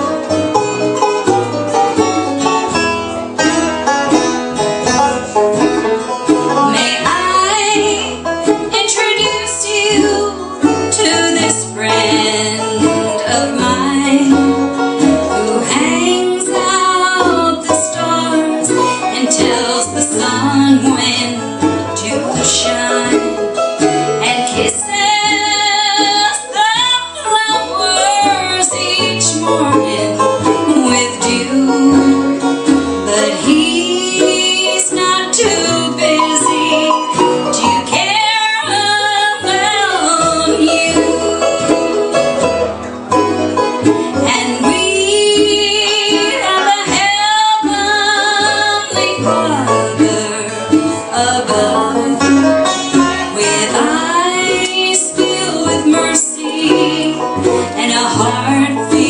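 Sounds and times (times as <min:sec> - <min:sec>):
bluegrass band playing: 0:00.0 - 0:59.0
woman singing: 0:06.6 - 0:23.4, 0:24.2 - 0:42.4, 0:44.1 - 0:59.0.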